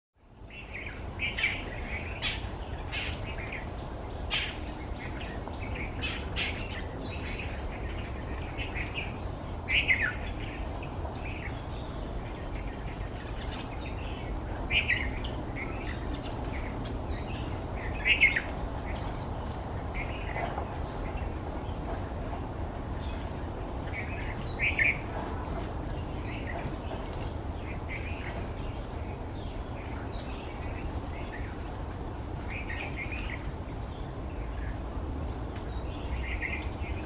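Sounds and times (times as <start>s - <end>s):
birds chirping: 0.2s - 37.0s.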